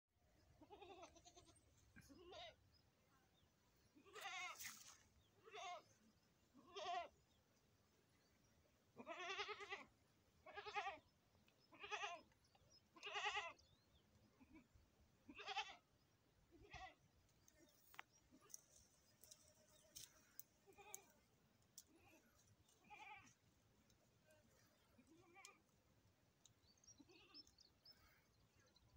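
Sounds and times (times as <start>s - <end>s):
goat bleating: 0.6s - 2.6s, 4.0s - 4.8s, 5.4s - 5.9s, 6.6s - 7.2s, 9.0s - 11.0s, 11.7s - 13.6s, 15.3s - 15.9s, 16.5s - 17.0s, 20.5s - 23.4s, 24.6s - 25.7s, 26.9s - 27.5s.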